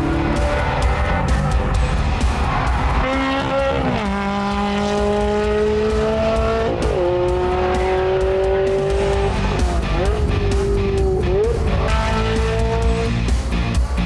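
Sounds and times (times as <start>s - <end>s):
car engine at high revs: 0.0s - 13.3s.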